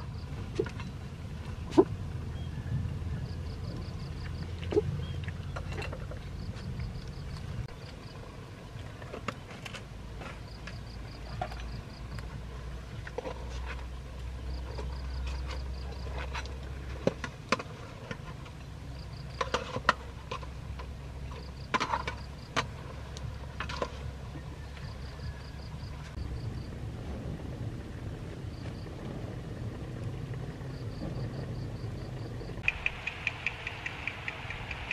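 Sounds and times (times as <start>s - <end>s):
steady low rumble: 0.0s - 34.9s
insect chirping in rapid trills: 30.7s - 34.9s
sharp clicks: 32.6s - 34.9s.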